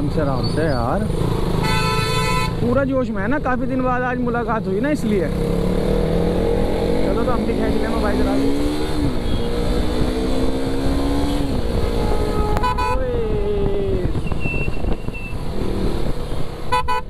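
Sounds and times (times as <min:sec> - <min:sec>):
motorcycle engine revving: 0:00.0 - 0:16.8
vehicle horn toot: 0:01.6 - 0:02.6, 0:09.2 - 0:09.6, 0:11.8 - 0:13.0, 0:16.7 - 0:17.0
rushing wind: 0:05.3 - 0:17.0.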